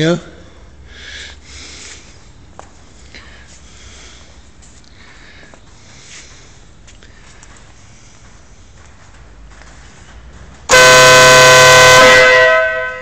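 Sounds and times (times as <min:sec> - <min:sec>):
motorcycle air horn blast: 0:10.7 - 0:13.0.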